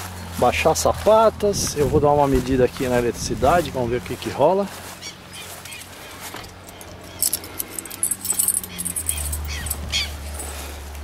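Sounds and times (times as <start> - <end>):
keys jingling: 6.3 - 10.6.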